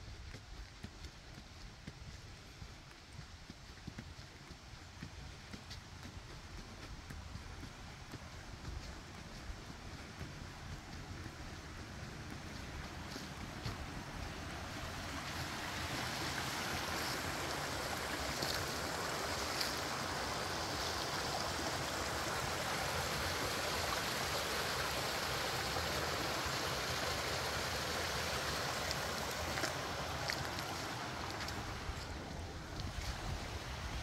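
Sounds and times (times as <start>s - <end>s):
creek water rushing: 0.2s - 34.0s.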